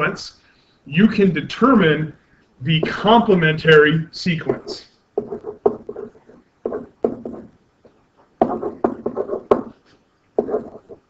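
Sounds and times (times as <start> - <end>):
pen tapping and scratching on paper: 5.2 - 11.0.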